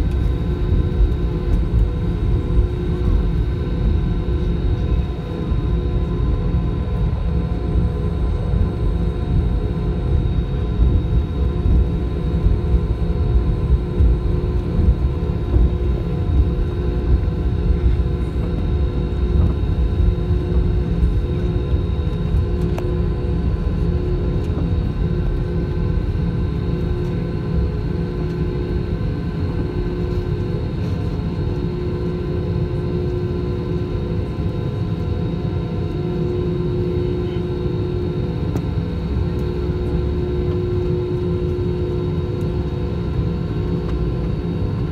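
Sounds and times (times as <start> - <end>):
heavy low rumble: 0.0 - 30.9
jet engines whining: 0.0 - 44.9.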